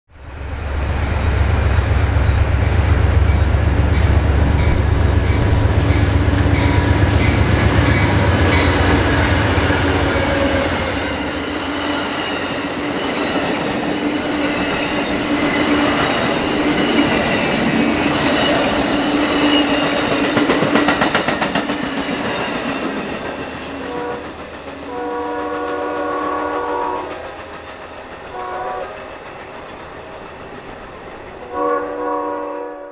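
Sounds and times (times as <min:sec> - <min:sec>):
train passing with low rumble: 0:00.1 - 0:32.9
train horn blasts: 0:04.6 - 0:12.1, 0:23.8 - 0:24.3, 0:24.9 - 0:27.2, 0:28.3 - 0:29.0, 0:31.5 - 0:32.9.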